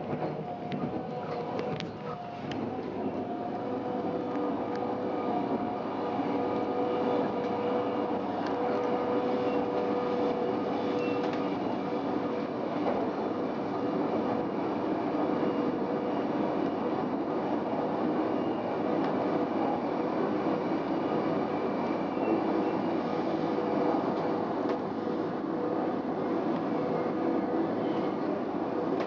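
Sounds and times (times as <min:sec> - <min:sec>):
constant hum: 0:00.0 - 0:17.7
train wheels rumbling on rail: 0:00.0 - 0:29.0.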